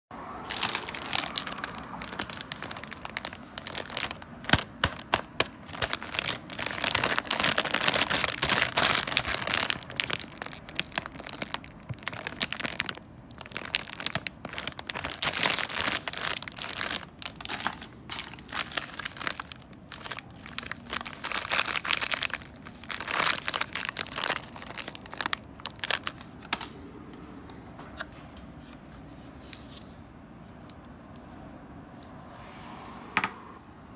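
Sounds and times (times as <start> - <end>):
plastic packaging crinkling: 0.4 - 26.7.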